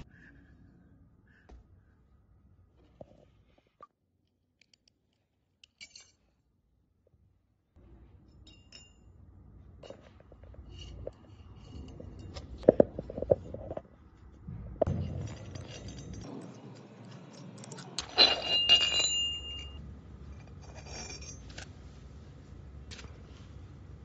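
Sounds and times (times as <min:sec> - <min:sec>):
metal part clinking and ringing: 0:05.6 - 0:06.3, 0:08.3 - 0:09.2, 0:14.8 - 0:19.8, 0:20.4 - 0:21.7
metal tools clicking and scraping: 0:05.6 - 0:06.4, 0:08.3 - 0:09.1, 0:09.8 - 0:13.8, 0:14.8 - 0:21.8.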